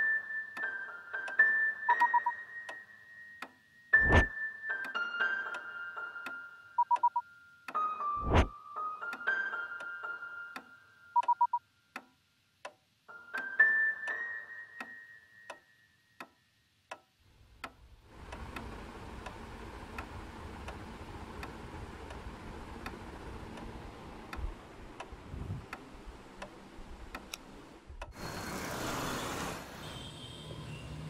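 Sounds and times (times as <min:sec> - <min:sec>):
clock ticking: 0:00.0 - 0:02.8, 0:03.4 - 0:07.8, 0:09.0 - 0:13.5, 0:16.2 - 0:28.2
low background rumble: 0:17.3 - 0:28.2.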